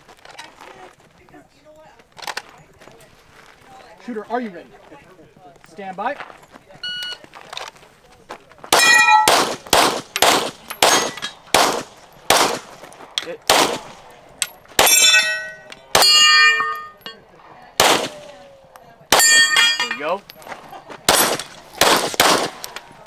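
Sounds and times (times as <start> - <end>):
pistol shots: 8.7 - 12.8, 13.4 - 14.1, 14.8 - 16.8, 17.8 - 18.4, 21.1 - 22.8
metallic ping of steel targets: 8.8 - 9.4, 14.8 - 17.2, 19.2 - 20.1.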